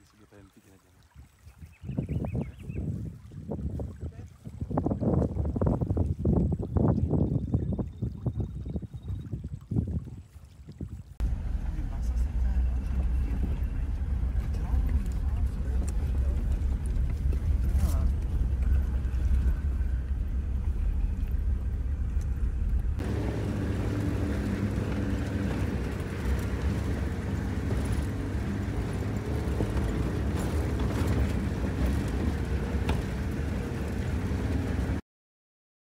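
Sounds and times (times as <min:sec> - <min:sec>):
vehicle engine rumble: 0:11.0 - 0:35.0.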